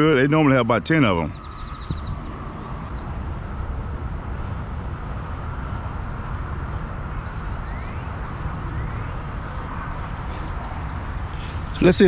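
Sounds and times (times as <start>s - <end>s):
low outdoor rumble: 0.0s - 12.0s
faint rising chirps: 1.0s - 3.4s.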